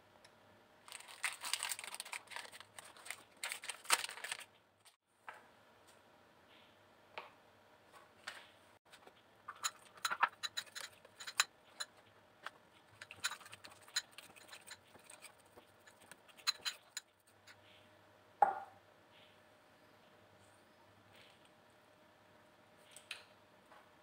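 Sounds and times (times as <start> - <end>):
spoon scraping glass bowl: 9.5 - 11.9, 12.9 - 17.6.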